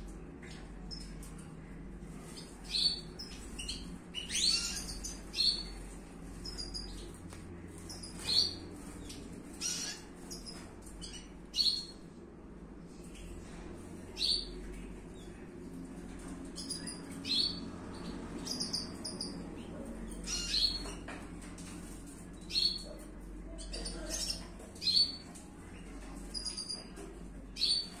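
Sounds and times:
soft bird twittering: 2.2s - 5.8s, 6.4s - 12.0s, 20.2s - 21.0s.

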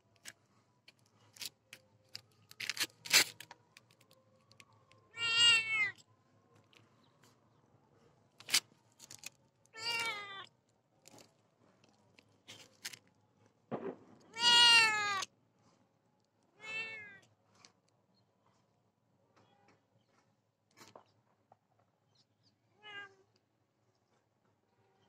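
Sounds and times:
cat meowing: 5.1s - 6.0s, 9.8s - 10.5s, 14.3s - 15.2s, 16.6s - 17.2s, 22.8s - 23.3s.

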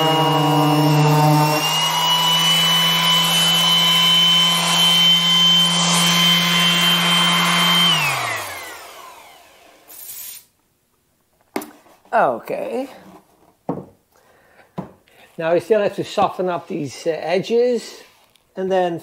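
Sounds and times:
sander motor whine: 0.0s - 9.9s
orbital sander sanding wood: 0.0s - 10.4s.

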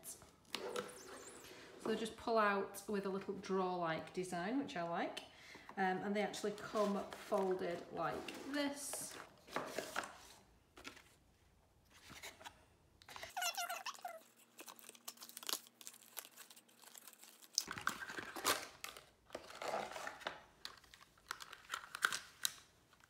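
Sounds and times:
plastic squeak: 0.5s - 1.6s, 13.1s - 14.4s
plastic and cardboard crinkling: 6.3s - 11.2s, 13.1s - 23.0s.

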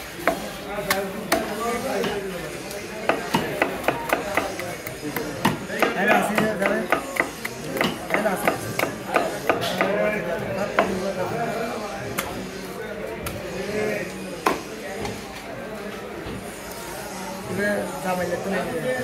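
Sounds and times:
knife chopping on wooden block: 3.0s - 9.9s.

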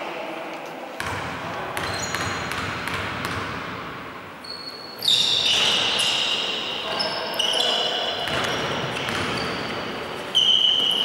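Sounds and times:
sneakers squeaking on court: 1.8s - 3.4s, 4.4s - 11.0s.

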